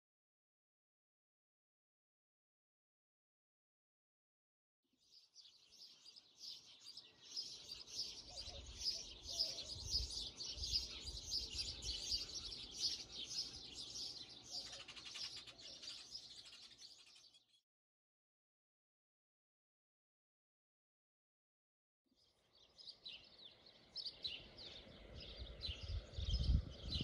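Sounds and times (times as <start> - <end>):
small birds chirping: 5.0 - 17.6, 22.1 - 27.0.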